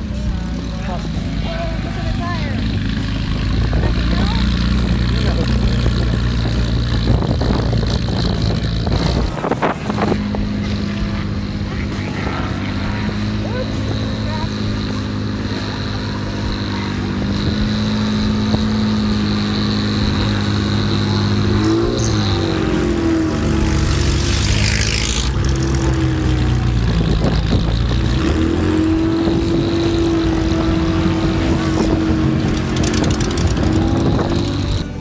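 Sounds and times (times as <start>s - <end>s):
race car engine at low revs: 0.0s - 35.0s.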